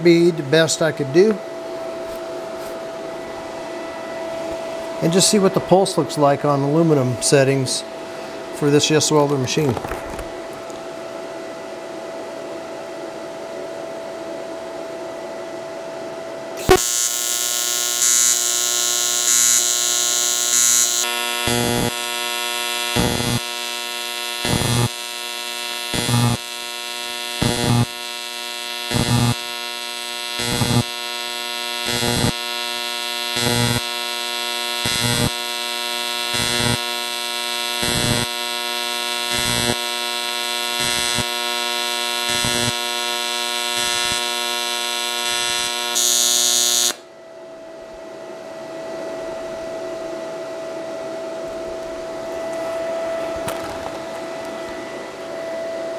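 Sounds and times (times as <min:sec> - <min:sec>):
low steady hum: 0:00.0 - 0:37.2, 0:46.9 - 0:55.9
welding arc buzzing: 0:16.6 - 0:47.0.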